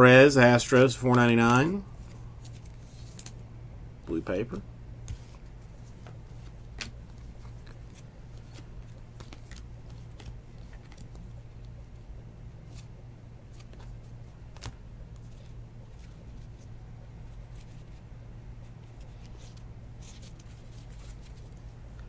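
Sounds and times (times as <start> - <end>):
steady low hum: 0.0 - 22.0
cards clicking and rustling: 1.0 - 3.4, 5.1 - 11.8, 13.5 - 16.7.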